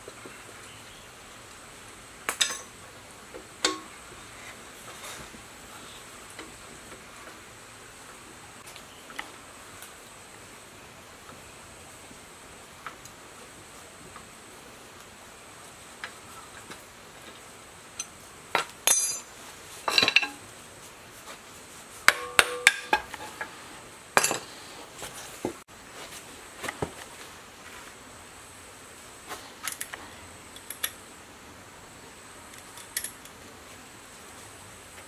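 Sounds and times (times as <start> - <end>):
metal tools clinking and knocking: 18.8 - 19.3, 19.9 - 20.4, 24.2 - 24.5.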